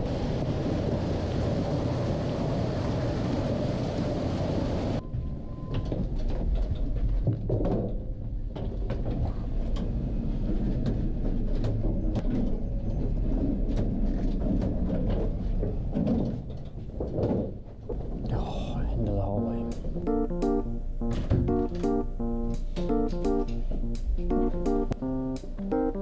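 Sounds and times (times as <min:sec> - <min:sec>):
elevator low rumble: 0:00.0 - 0:07.2, 0:07.9 - 0:26.0
elevator doors sliding open: 0:19.8 - 0:24.9.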